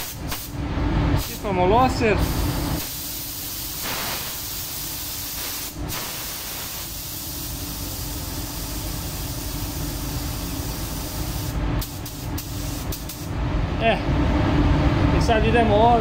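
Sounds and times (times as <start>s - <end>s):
paint spray gun hissing: 2.2s - 13.3s.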